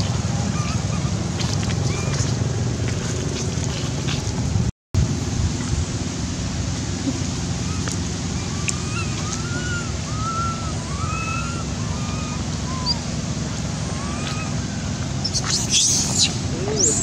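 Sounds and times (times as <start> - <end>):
monkey high coos: 0.0 - 1.2, 7.1 - 13.2, 13.8 - 17.0
wind noise on microphone: 0.0 - 6.8.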